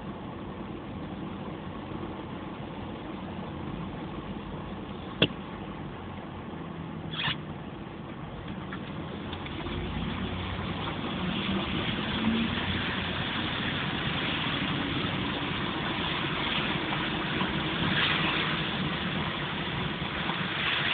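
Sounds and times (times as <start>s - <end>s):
car driving on wet road: 0.0s - 20.9s
water hissing under tyres: 9.0s - 20.9s.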